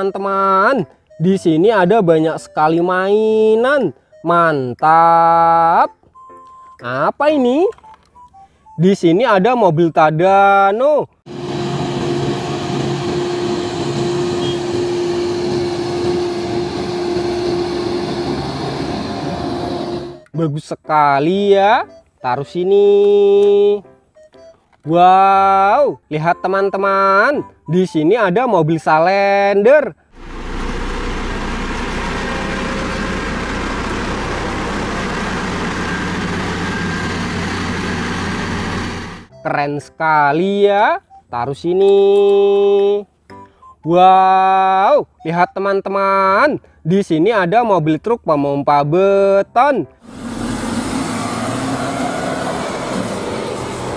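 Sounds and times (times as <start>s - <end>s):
crane engine drone: 11.3s - 20.3s, 30.2s - 39.3s, 50.0s - 53.9s
road noise: 11.3s - 20.4s, 30.1s - 39.3s, 49.9s - 53.9s.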